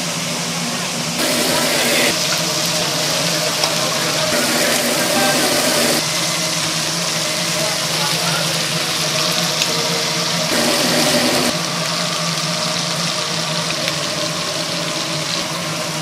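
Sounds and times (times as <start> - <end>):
machine hum and hiss: 0.0 - 16.0
rush of noise: 1.2 - 7.3, 10.5 - 11.7.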